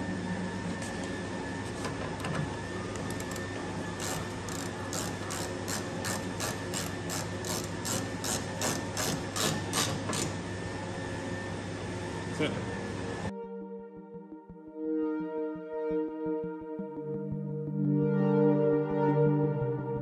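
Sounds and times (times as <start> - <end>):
hand ratchet clicking: 4.0 - 10.4.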